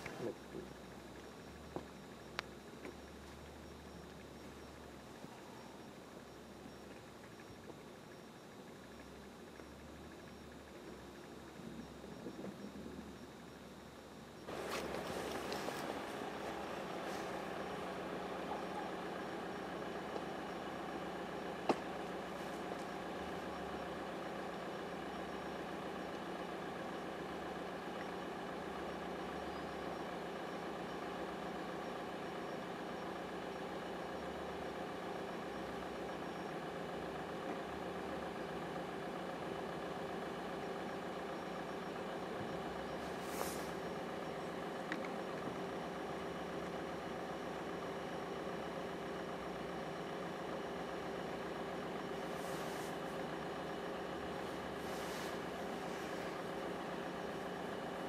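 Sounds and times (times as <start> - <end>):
engine idling hum: 0.0 - 58.0
brief hiss: 43.0 - 43.8, 52.3 - 53.0.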